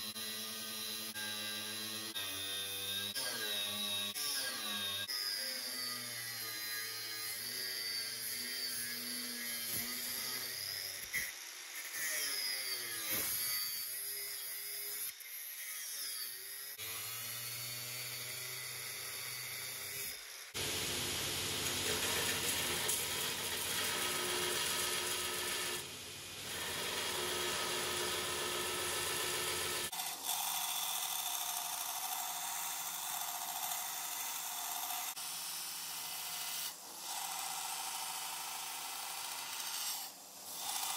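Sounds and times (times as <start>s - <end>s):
angle grinder grinding steel: 0.0s - 40.9s
belt grinder on steel: 21.6s - 40.9s.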